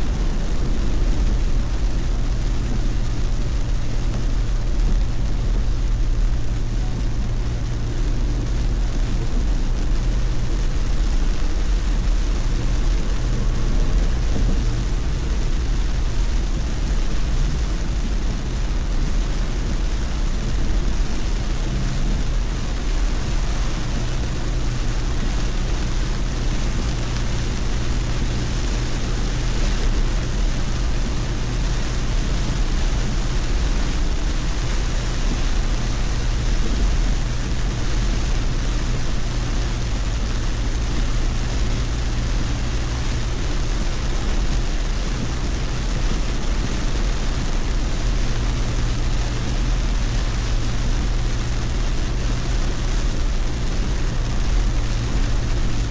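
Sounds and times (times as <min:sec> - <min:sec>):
car driving drone from inside: 0:00.0 - 0:55.9
tyres hissing on wet road: 0:00.0 - 0:55.9.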